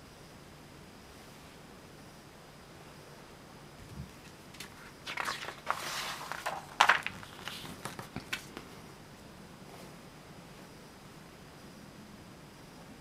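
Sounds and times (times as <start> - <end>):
paper pages rustling: 4.2 - 8.7.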